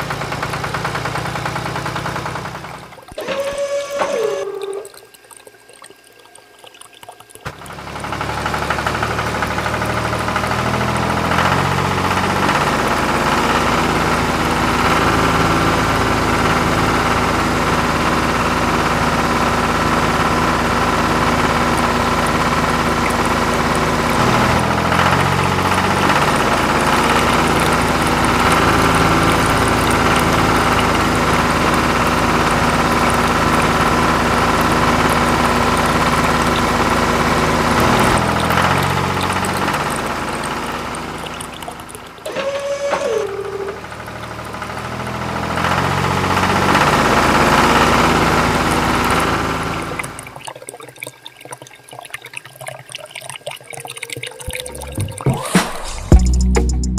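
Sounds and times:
tractor diesel engine idling: 7.6 - 50.1.

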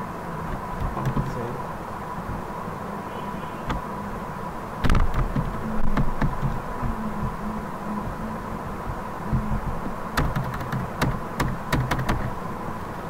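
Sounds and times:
low hum and hiss: 0.0 - 13.0
mouse and keyboard clicks: 10.2 - 12.3.

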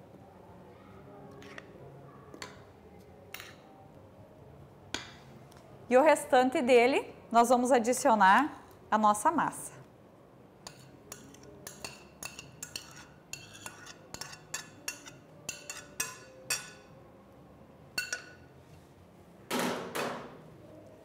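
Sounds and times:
spatula clinking on glass bowl: 10.6 - 16.9, 18.0 - 18.4.

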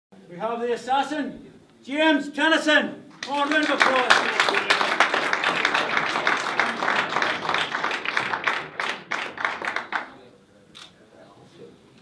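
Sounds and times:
people clapping: 3.1 - 10.3.

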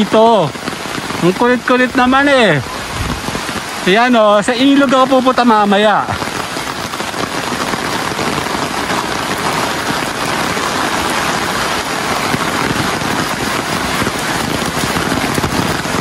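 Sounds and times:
heavy rain falling: 0.0 - 16.0.

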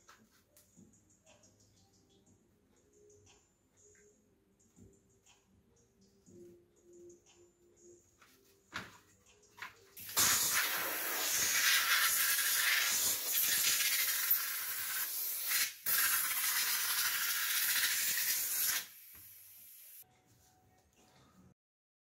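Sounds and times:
hissing spray nozzle jet: 10.0 - 20.0.

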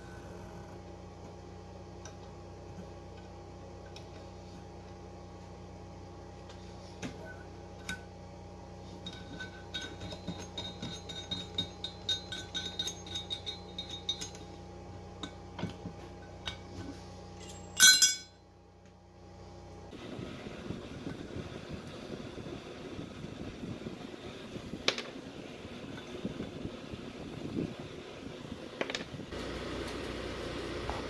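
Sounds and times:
steady hum: 0.0 - 31.0
metal tools clinking: 9.0 - 14.5, 17.4 - 18.4
loud metal clang: 17.7 - 18.3.

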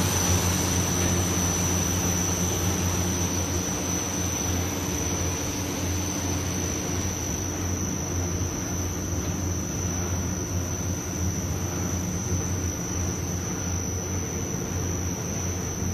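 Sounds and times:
high whine: 0.0 - 9.4.

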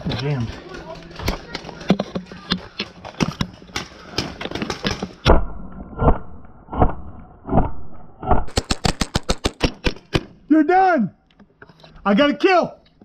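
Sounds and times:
paintball marker firing shots: 4.7 - 10.4.

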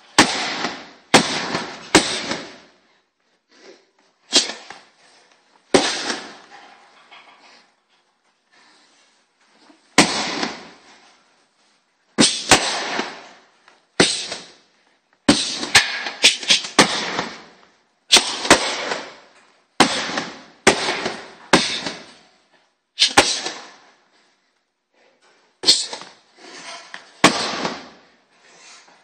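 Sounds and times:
punches on heavy punching bag: 0.1 - 2.6, 10.0 - 10.7, 15.3 - 19.1, 19.8 - 22.2.

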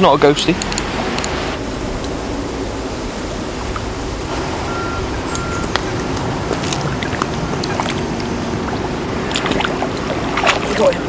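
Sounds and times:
outdoor hiss: 0.0 - 10.2
fish splashing: 0.7 - 11.0
short beeps: 4.6 - 5.8.

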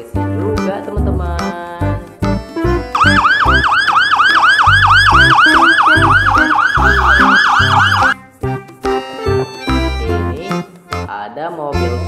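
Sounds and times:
background music: 0.0 - 12.0
police siren yelping: 3.0 - 8.2.

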